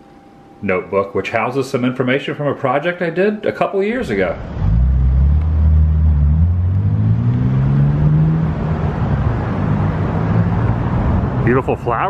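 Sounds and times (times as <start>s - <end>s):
motor vehicle engine accelerating: 4.0s - 11.5s.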